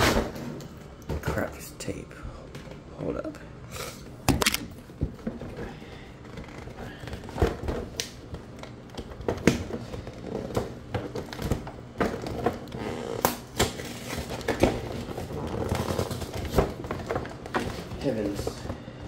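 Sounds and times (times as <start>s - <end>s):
packing tape pulled: 4.4s - 4.7s.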